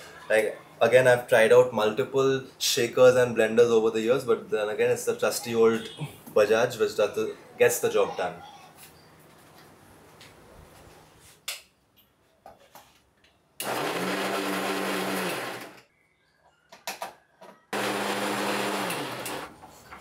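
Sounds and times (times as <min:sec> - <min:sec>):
blender motor whirring: 0:13.6 - 0:15.8, 0:17.7 - 0:19.6.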